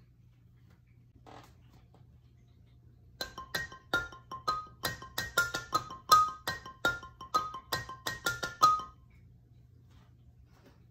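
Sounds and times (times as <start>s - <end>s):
xylophone ringtone melody: 3.2s - 9.1s.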